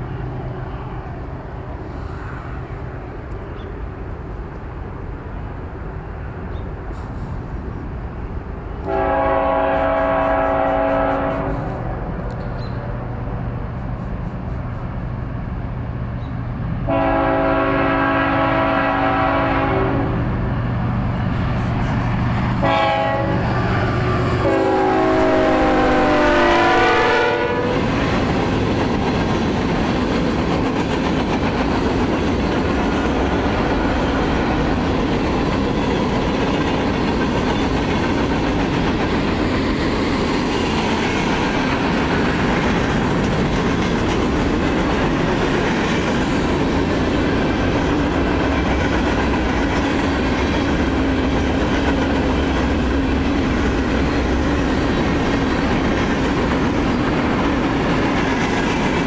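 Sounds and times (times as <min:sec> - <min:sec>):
train horn blasts: 0:08.8 - 0:12.0, 0:16.9 - 0:20.3, 0:22.6 - 0:27.9
freight cars rumbling and clattering: 0:27.6 - 0:59.0.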